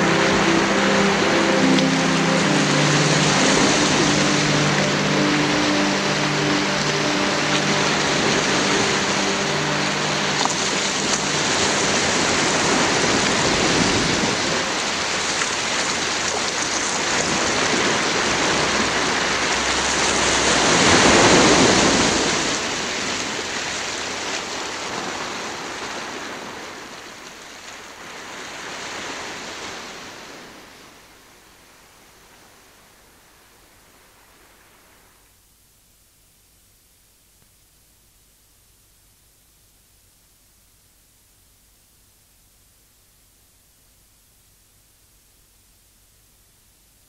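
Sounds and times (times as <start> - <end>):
held low musical tones: 0.0 - 26.5
sea waves washing: 0.0 - 35.2.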